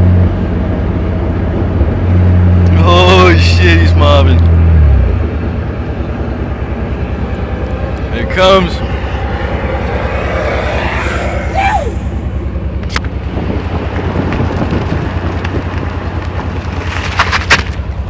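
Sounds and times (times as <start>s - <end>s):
road noise rumbling: 0.0s - 18.0s
wind buffeting microphone: 5.0s - 16.9s.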